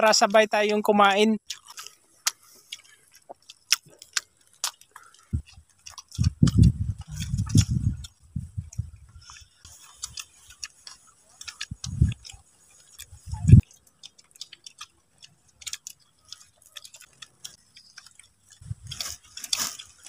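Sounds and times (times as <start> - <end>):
low thumps: 6.2 - 9.2, 13.3 - 13.6.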